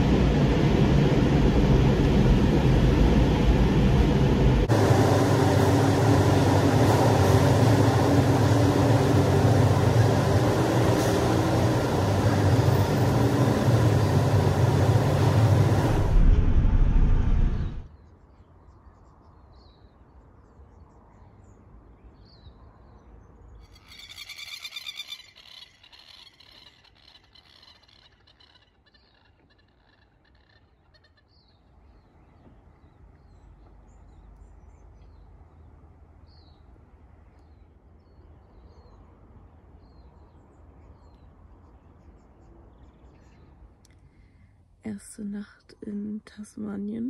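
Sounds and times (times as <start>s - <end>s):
low rumble: 0.0s - 17.9s
faint bird chirps: 23.5s - 35.3s
rapidly pulsing animal call: 23.7s - 31.3s.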